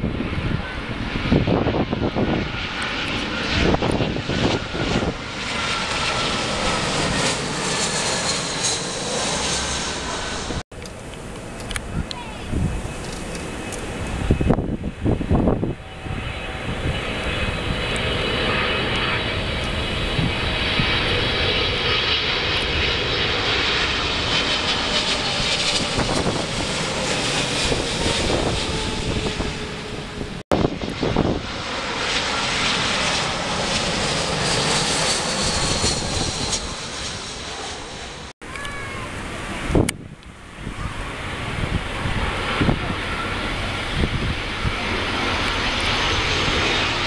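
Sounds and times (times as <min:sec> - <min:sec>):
jet engines roaring overhead: 0:00.0 - 0:47.0
wind thumps on microphone: 0:14.1 - 0:15.8.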